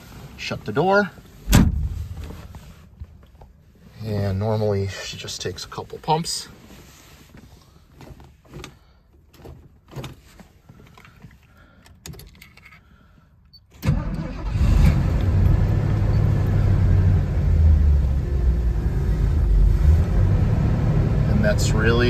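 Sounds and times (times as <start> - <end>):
car engine cranking and idling: 0.1 - 4.8, 13.8 - 22.0.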